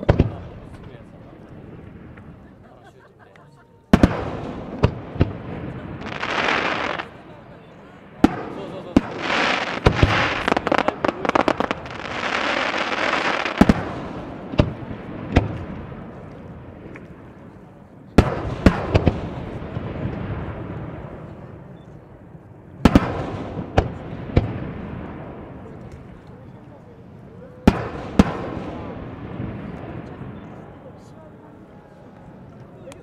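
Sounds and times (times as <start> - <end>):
fireworks bursting: 0.0 - 2.6, 3.9 - 31.2
fireworks crackling hiss: 4.0 - 17.7.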